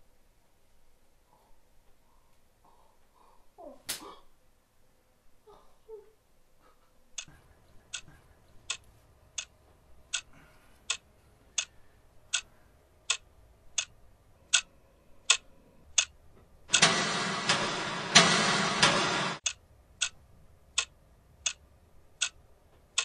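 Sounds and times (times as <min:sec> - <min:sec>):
clock ticking: 0:07.2 - 0:11.0, 0:11.6 - 0:23.0
loud dense sound: 0:16.7 - 0:19.5.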